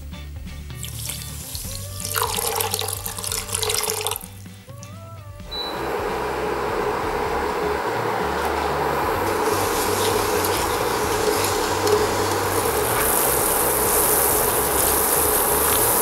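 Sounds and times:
water pouring into metal pot: 0:00.7 - 0:04.5, 0:09.1 - 0:16.0
steady hiss: 0:00.7 - 0:04.7, 0:05.7 - 0:16.0.

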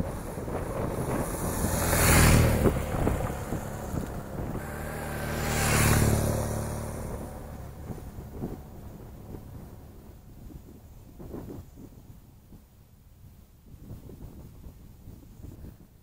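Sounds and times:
motorcycle engine passing: 0:00.0 - 0:11.7.

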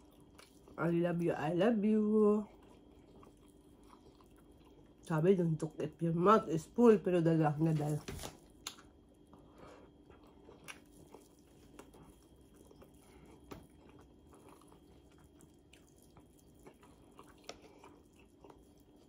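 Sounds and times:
faint chewing: 0:00.0 - 0:00.8, 0:02.3 - 0:05.1, 0:08.4 - 0:19.0.

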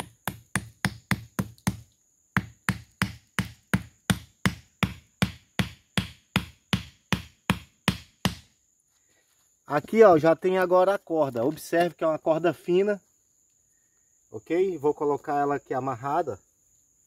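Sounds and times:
wooden stake knocked into dirt: 0:00.0 - 0:08.5.

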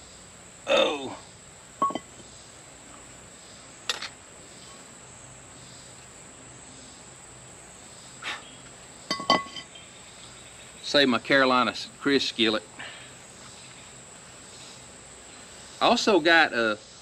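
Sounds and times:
cast iron cookware clinking: 0:01.8 - 0:02.2, 0:09.1 - 0:09.8.

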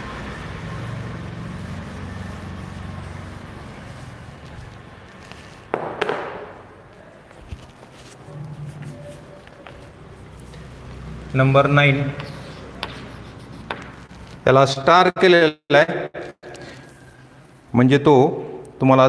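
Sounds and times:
duster rubbing chalkboard: 0:00.0 - 0:05.7, 0:07.6 - 0:14.5.

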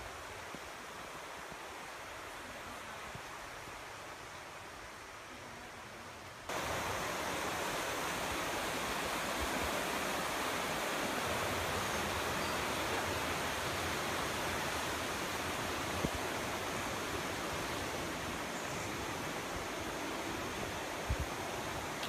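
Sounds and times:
running water rushing: 0:00.0 - 0:22.0.

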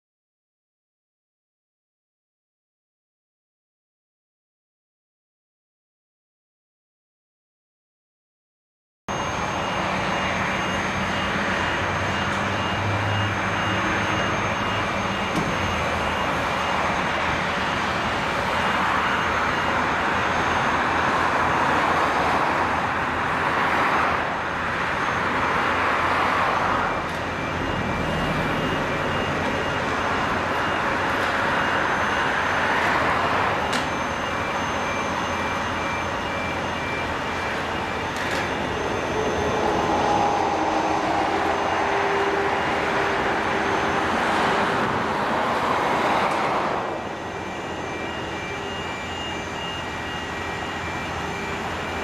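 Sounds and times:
heavy diesel machinery running: 0:09.1 - 0:52.0
pulsing high beep: 0:09.1 - 0:52.0.

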